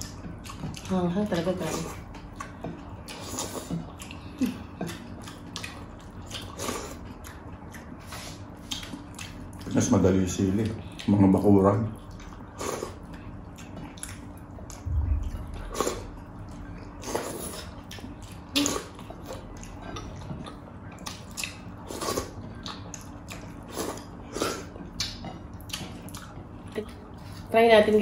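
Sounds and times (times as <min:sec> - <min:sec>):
soft low thump: 0:14.8 - 0:15.7
wet lip smacks and chewing: 0:19.5 - 0:21.7, 0:24.9 - 0:26.4.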